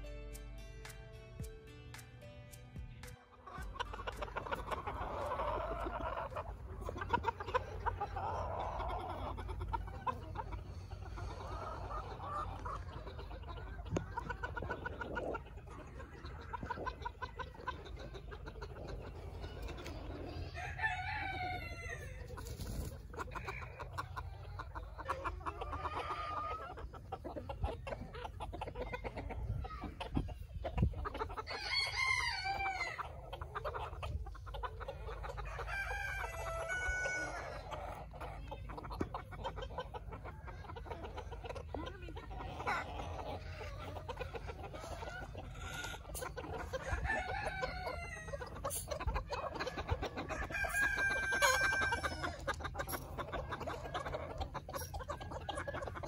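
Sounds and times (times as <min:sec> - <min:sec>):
chickens clucking: 0:00.0 - 0:56.0
rooster crowing: 0:20.6 - 0:22.2.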